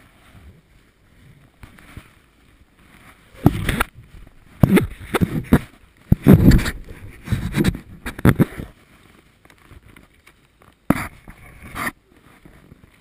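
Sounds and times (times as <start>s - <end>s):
camera handling knocks and rustles: 4.6s - 8.7s.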